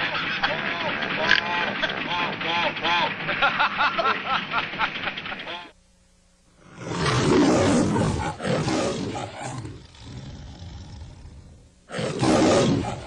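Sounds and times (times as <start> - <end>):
man laughing: 0.0 - 5.7
lion roaring: 6.6 - 13.0.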